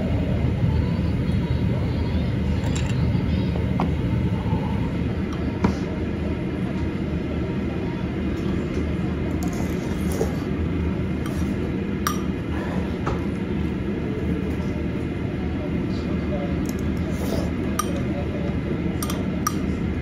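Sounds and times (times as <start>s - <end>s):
metal spoon clinking ceramic bowl: 19.0s - 19.7s.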